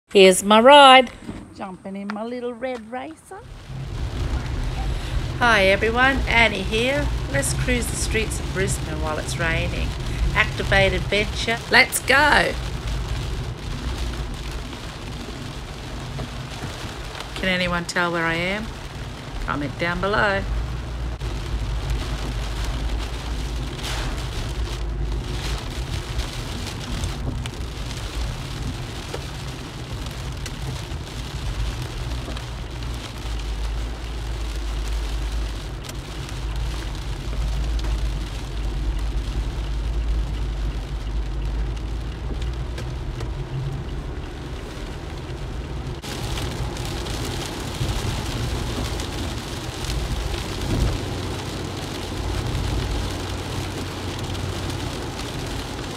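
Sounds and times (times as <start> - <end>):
low road rumble: 0.0 - 55.9
wet road tyre noise: 0.0 - 55.9
rain hissing on car: 2.2 - 55.9.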